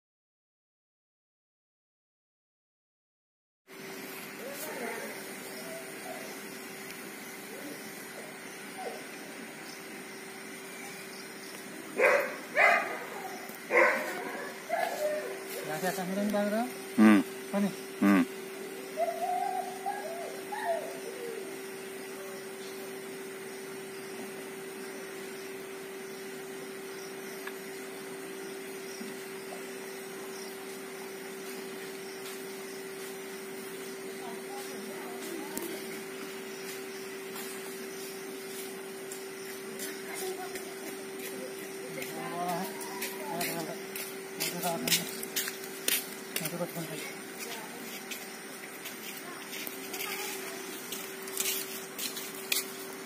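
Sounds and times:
dog barking: 12.0 - 15.3.

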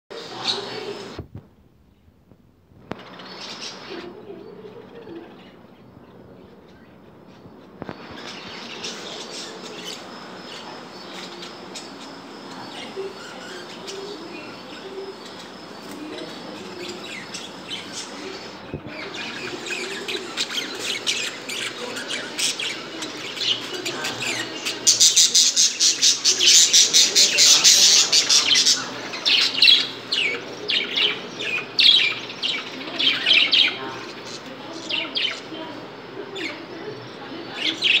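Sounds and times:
budgerigars chirping: 7.9 - 35.6.

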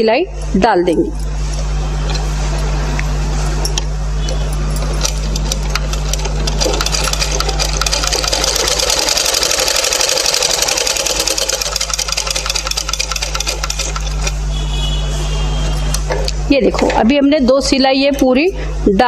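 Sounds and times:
sewing machine stitching: 5.0 - 14.4.

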